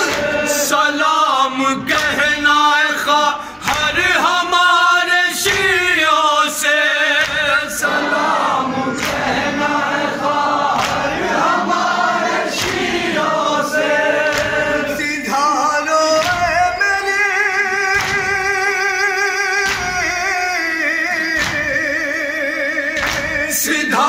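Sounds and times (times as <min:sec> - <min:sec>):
men singing in chorus: 0:00.0 - 0:24.0
man chanting with vibrato: 0:13.8 - 0:24.0.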